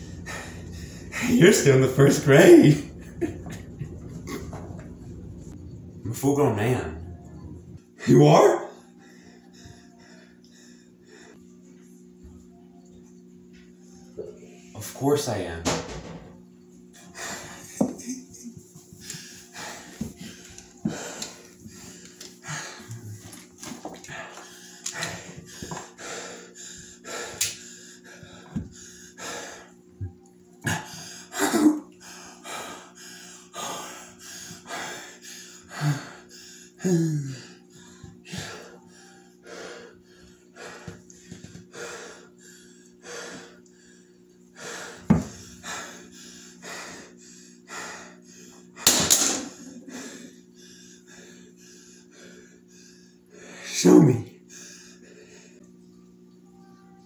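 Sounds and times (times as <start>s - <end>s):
man breathing heavily: 0.0s - 3.0s, 8.8s - 11.4s, 18.9s - 23.4s, 24.0s - 29.8s, 32.0s - 48.8s, 49.6s - 53.8s, 54.4s - 55.6s
steady low hum: 0.0s - 57.0s.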